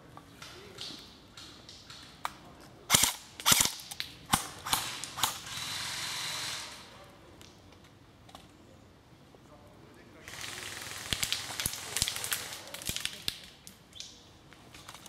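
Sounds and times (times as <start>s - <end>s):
airsoft gun shots: 2.9s - 5.4s
steady hiss: 4.6s - 7.4s, 9.7s - 14.4s.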